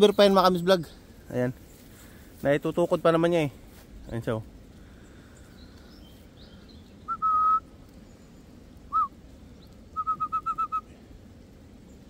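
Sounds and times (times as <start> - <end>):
person whistling: 7.1 - 7.6, 10.0 - 10.8.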